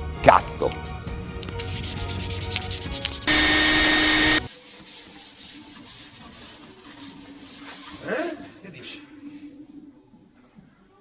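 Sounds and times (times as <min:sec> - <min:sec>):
sandpaper rubbing on plywood: 0:01.6 - 0:08.1
machine noise with whine: 0:03.3 - 0:04.5.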